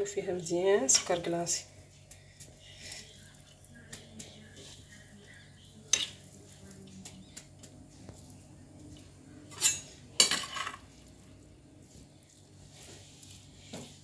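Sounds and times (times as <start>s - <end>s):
hands rustling noodles in dish: 6.0s - 9.2s, 10.8s - 14.0s.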